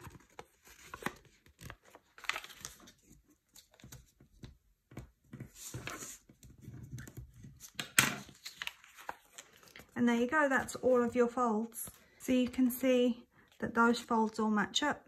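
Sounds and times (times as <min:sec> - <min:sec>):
paper rustling and scraping: 0:00.0 - 0:04.2, 0:05.3 - 0:10.0.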